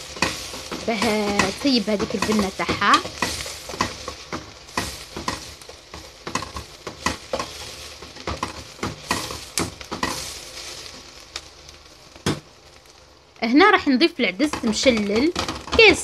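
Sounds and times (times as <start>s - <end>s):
onions sizzling in oil: 0.0s - 16.0s
wooden spoon scraping a pot: 0.1s - 11.0s.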